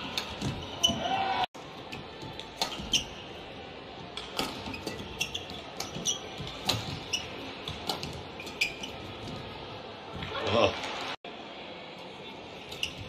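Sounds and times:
shoes squeaking on court: 0.1 - 1.1, 2.0 - 3.4, 4.2 - 9.6.

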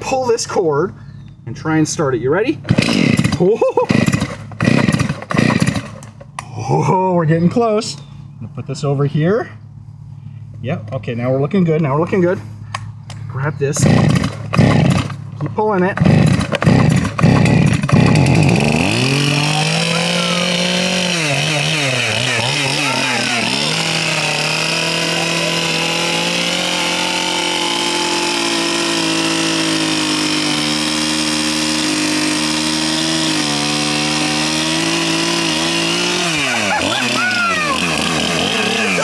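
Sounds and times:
chainsaw starting and running: 2.6 - 6.3, 13.7 - 39.0.

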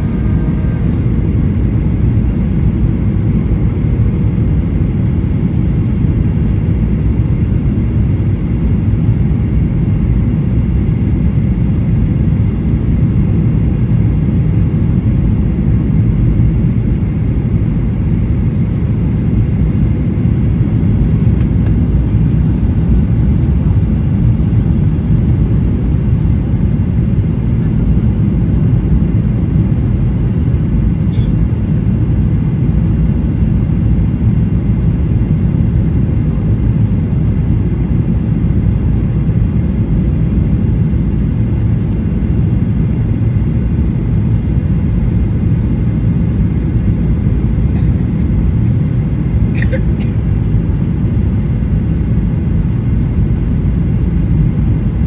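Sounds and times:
airplane cabin engine rumble: 0.0 - 55.0.

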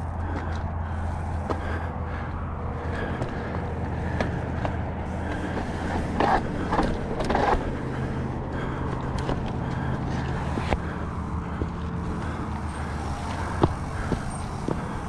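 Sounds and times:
bike rattling and clicking: 0.0 - 15.0
bike tyres rumbling over rock: 2.9 - 15.0.

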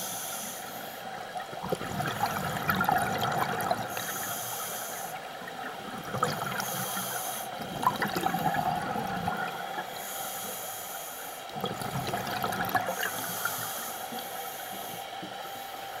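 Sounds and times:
steady hum: 0.0 - 16.0
diver exhaling bubbles underwater: 1.6 - 4.0, 5.9 - 6.9, 7.5 - 9.8, 11.6 - 13.1.

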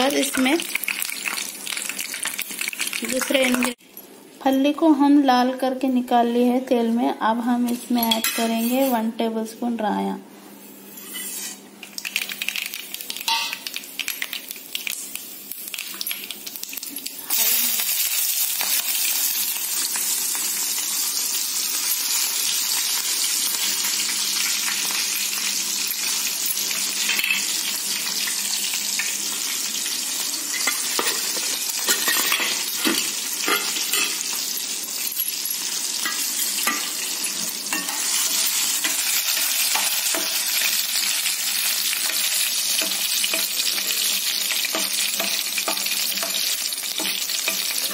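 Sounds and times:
frying sizzle in hot oil: 0.0 - 5.1, 10.6 - 47.9
oil crackling: 11.9 - 18.6.

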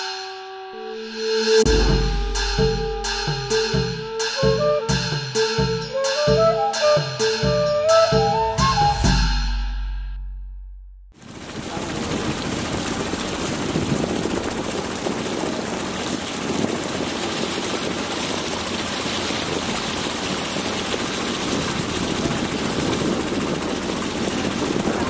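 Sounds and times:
motorboat engine running: 11.1 - 25.0
water rushing: 11.2 - 25.0.

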